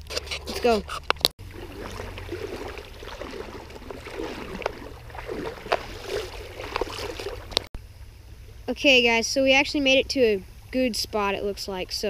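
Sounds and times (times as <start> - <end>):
legs sloshing through water: 0.3 - 7.8.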